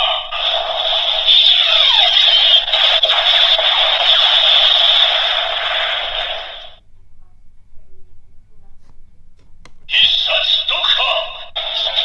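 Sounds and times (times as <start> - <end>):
toy belt electronic sound effects: 0.0 - 6.8.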